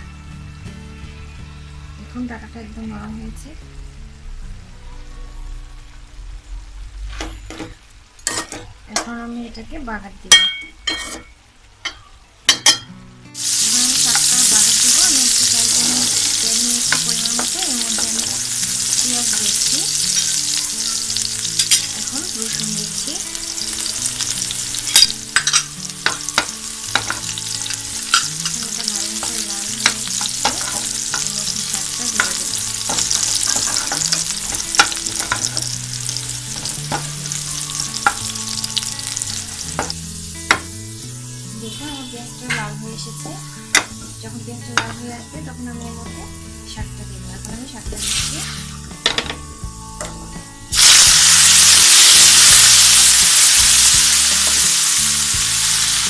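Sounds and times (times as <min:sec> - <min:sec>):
spoon clinking against pan: 0:10.3 - 0:12.9
onions sizzling in hot oil: 0:13.3 - 0:46.6, 0:47.2 - 0:56.0.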